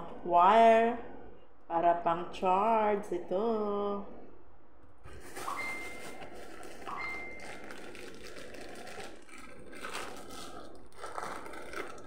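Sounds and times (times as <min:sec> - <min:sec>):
packaging rustling: 0:05.1 - 0:12.0.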